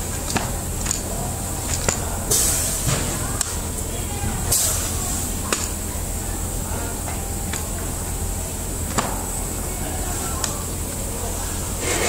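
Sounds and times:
blade scraping cardboard: 11.8 - 12.0.

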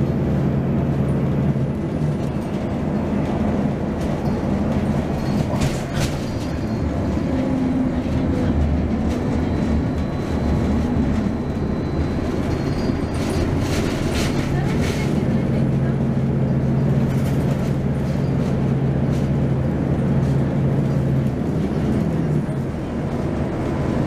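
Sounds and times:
bus engine and road drone: 0.0 - 24.0.

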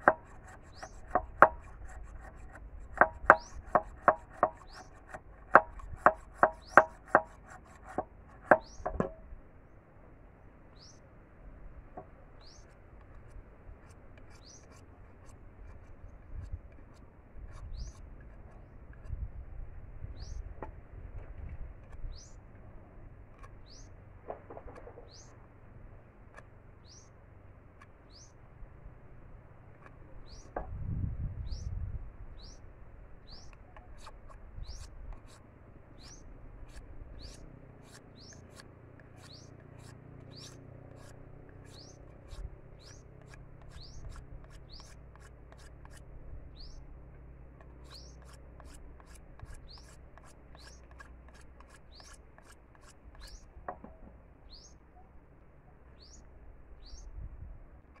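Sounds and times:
knife scraping bamboo: 0.0 - 9.2, 12.4 - 19.2, 21.7 - 24.0, 33.3 - 46.8, 47.6 - 53.5
bird chirping: 3.2 - 5.0, 8.4 - 9.2, 10.7 - 11.0, 12.4 - 12.8, 14.3 - 14.8, 17.6 - 18.0, 23.6 - 24.0, 25.0 - 25.4, 26.8 - 27.2, 28.1 - 28.4, 30.2 - 30.6, 32.4 - 32.6, 33.2 - 34.9, 36.0 - 38.6, 39.2 - 45.6, 46.5 - 46.9, 47.8 - 48.4, 49.0 - 51.0, 51.8 - 53.5, 54.4 - 55.2, 55.8 - 57.1.

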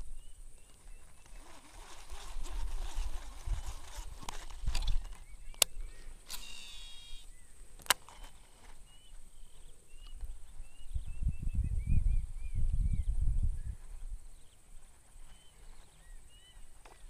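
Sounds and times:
small birds chirping: 0.0 - 17.0
fishing reel clicks: 5.6 - 7.3
fishing reel whine: 6.2 - 7.3.

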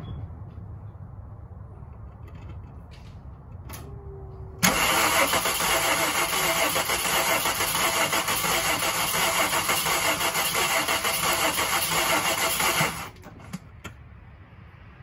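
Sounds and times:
starter motor cranking engine: 4.6 - 13.6.

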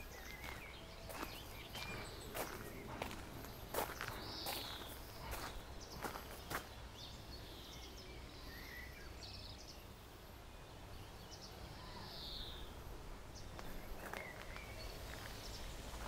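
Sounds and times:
footsteps on gravel: 0.0 - 6.8, 13.5 - 16.0
small birds chirping: 0.0 - 16.0.

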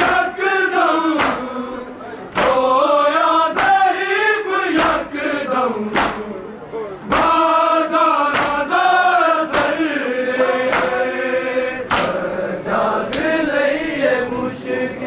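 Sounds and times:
crowd of men chanting: 0.0 - 15.0
chest-beating slaps: 1.1 - 1.5, 2.3 - 2.8, 3.5 - 3.8, 4.7 - 5.1, 5.9 - 6.4, 7.1 - 7.4, 8.2 - 8.7, 9.5 - 9.8, 10.6 - 11.1, 11.9 - 12.3.

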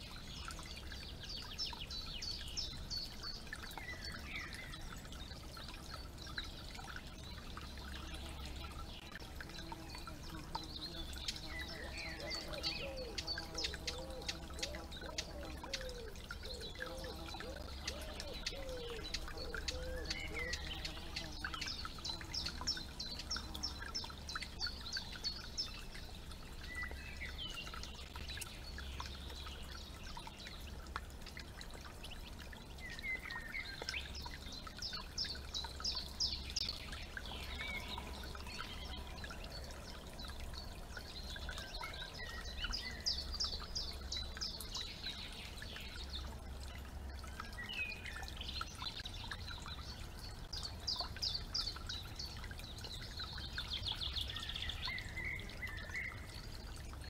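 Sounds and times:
birds singing: 0.0 - 30.7, 32.0 - 57.0
water trickling: 0.0 - 57.0.

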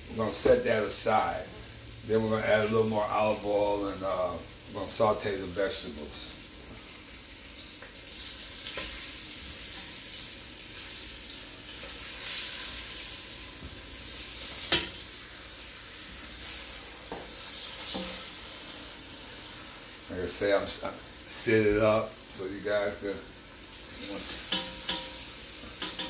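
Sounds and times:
meat sizzling in oil: 0.0 - 26.0
tongs knocking a pot: 24.4 - 25.2, 25.8 - 26.0.

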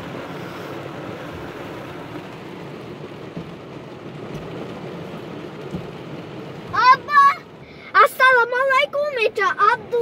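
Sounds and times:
heavy rain on car roof: 0.0 - 10.0.

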